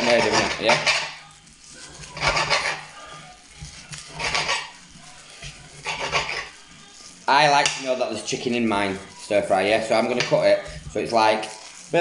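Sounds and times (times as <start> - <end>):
knife scraping glass board: 0.0 - 1.2, 2.0 - 2.9, 4.0 - 4.8, 5.4 - 6.6
knife slicing raw meat: 2.0 - 2.9, 4.1 - 4.7, 5.5 - 6.5.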